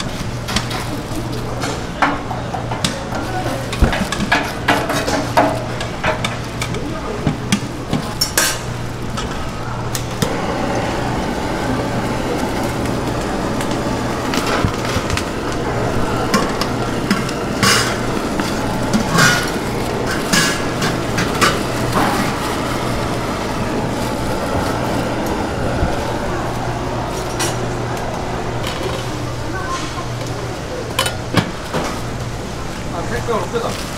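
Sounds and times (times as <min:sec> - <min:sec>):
utensils and cookware clattering: 0:00.0 - 0:10.8, 0:12.3 - 0:23.2, 0:27.2 - 0:32.2
steady low hum: 0:00.0 - 0:33.9.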